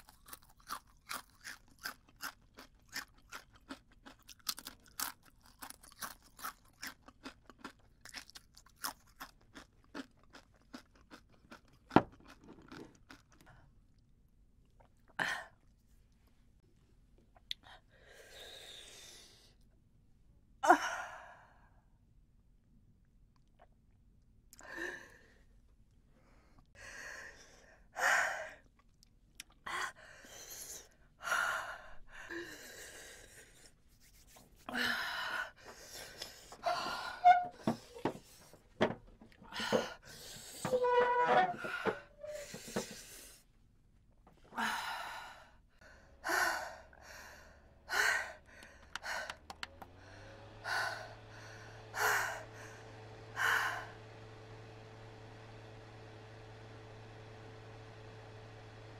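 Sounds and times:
handheld electric fan humming: 0:47.6 - 0:58.9.

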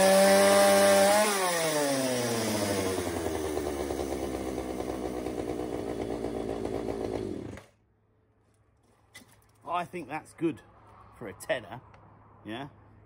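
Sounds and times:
chainsaw revving and idling: 0:00.0 - 0:07.8.

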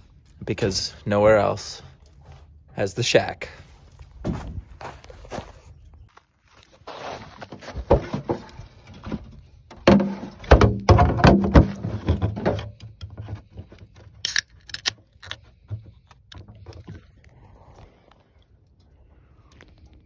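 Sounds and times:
can tab cracked open hissing: 0:14.2 - 0:15.4.

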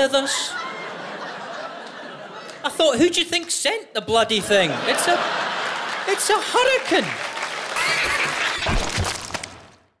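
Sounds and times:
crashing and breaking: 0:08.6 - 0:09.8.

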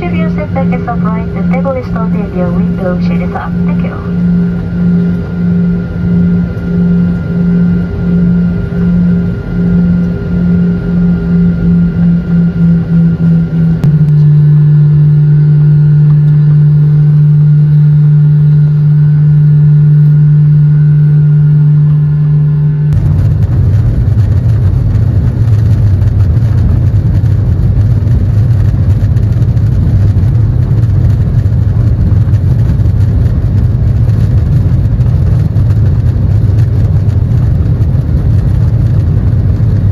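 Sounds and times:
deep rumble with rushing noise: 0:00.0 - 0:39.9
jet engines humming: 0:00.0 - 0:39.9.

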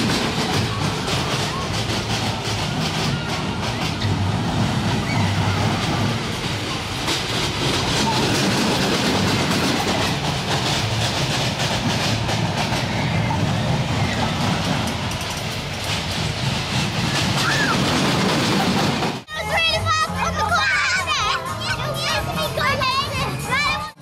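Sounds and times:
roller coaster wheels rumbling: 0:00.0 - 0:24.0
light track clicks: 0:14.6 - 0:16.3.

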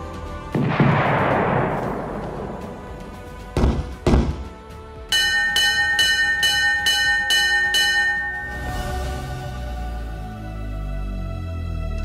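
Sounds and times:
heavy booms: 0:00.6 - 0:04.4
bell struck rapidly: 0:05.2 - 0:09.3.

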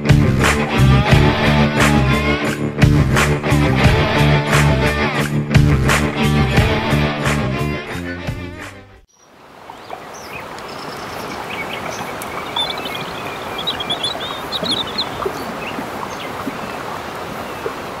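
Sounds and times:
small birds chirping: 0:09.1 - 0:18.0
flowing water rushing: 0:09.2 - 0:18.0.

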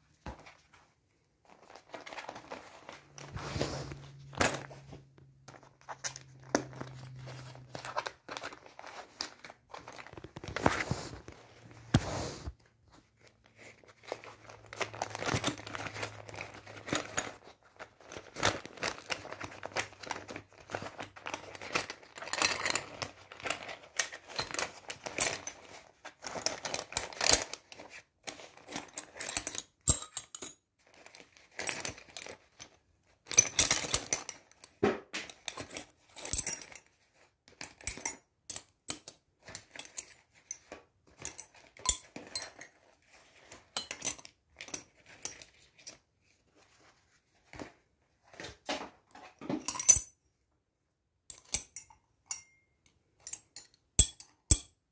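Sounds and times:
vinyl tool pouch crinkling: 0:00.2 - 0:29.3, 0:30.8 - 0:37.7, 0:39.4 - 0:49.3
steel tools clinking: 0:49.6 - 0:50.1, 0:51.3 - 0:54.7.

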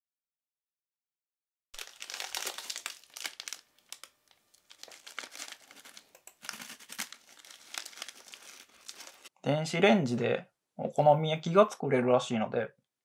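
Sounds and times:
snack wrapper crinkling and tearing: 0:01.8 - 0:09.3.

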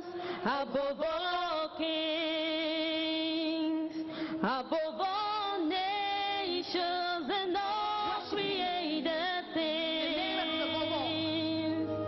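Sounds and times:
woman singing into microphone: 0:00.0 - 0:12.0.

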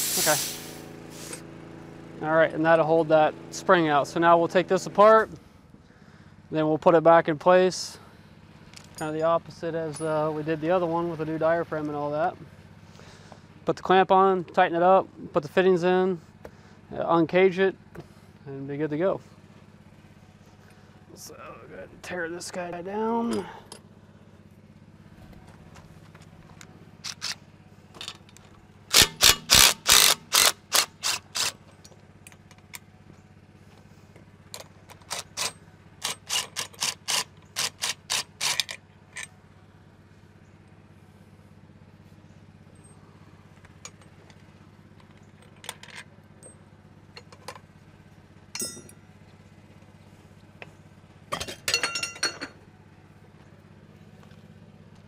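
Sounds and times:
steady low hum: 0:00.0 - 0:55.0
metal parts clicking: 0:27.0 - 0:27.4, 0:34.6 - 0:39.3
impact driver hammering: 0:28.9 - 0:31.5.

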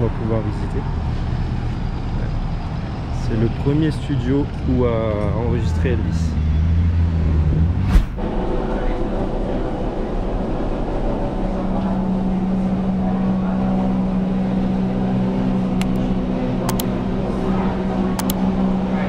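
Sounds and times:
low mechanical hum: 0:07.8 - 0:19.0.

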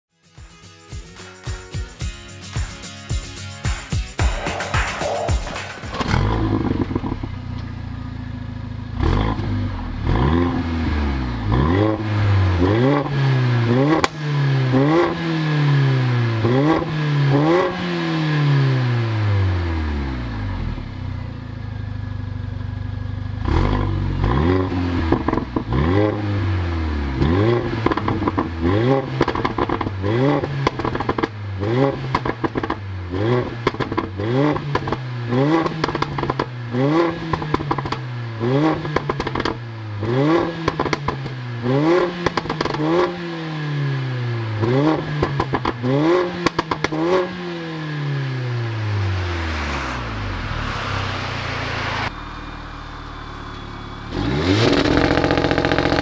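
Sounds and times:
exhaust crackles and pops: 0:04.2 - 0:07.8, 0:25.0 - 0:25.8, 0:27.2 - 0:38.1, 0:38.7 - 0:39.6, 0:40.6 - 0:41.4, 0:42.2 - 0:43.1, 0:44.6 - 0:47.2, 0:54.6 - 0:56.0
car engine revving: 0:04.2 - 0:56.0.

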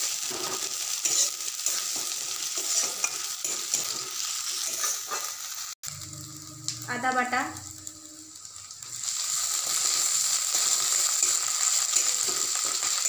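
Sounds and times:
onions sizzling in oil: 0:00.0 - 0:13.0
metal spatula scraping pan: 0:00.2 - 0:05.4.

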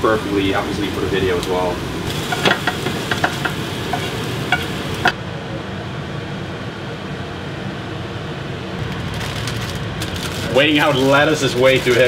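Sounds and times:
food sizzling in a frying pan: 0:01.2 - 0:05.2.

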